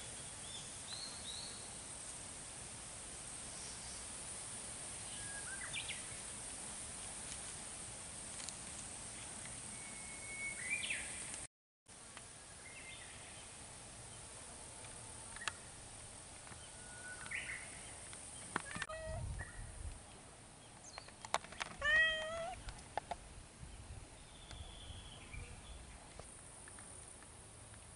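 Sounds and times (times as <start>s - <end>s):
cats meowing: 18.6s - 19.2s, 21.8s - 22.6s.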